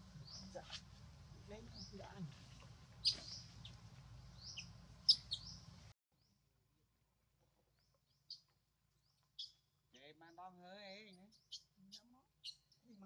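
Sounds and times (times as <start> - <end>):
low background hiss: 0.0 - 5.9
small birds chirping: 0.0 - 6.4, 7.7 - 13.0.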